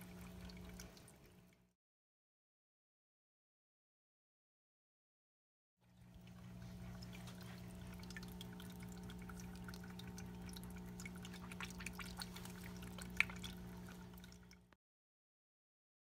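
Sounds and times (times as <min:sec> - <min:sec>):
aquarium filter motor hum: 0:00.0 - 0:01.7, 0:05.8 - 0:14.8
water trickling and dripping: 0:00.0 - 0:01.7, 0:05.8 - 0:14.8.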